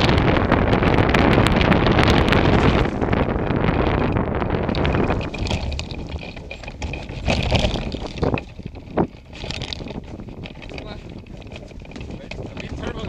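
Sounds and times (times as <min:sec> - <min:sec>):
wind buffeting microphone: 0:00.0 - 0:13.0
thumps and rustles: 0:02.2 - 0:03.2, 0:04.6 - 0:13.0.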